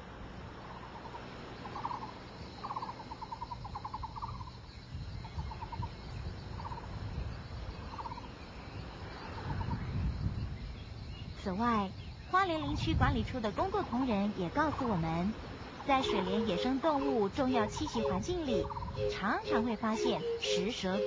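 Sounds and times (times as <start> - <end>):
animal rattling call: 16.0 - 21.0.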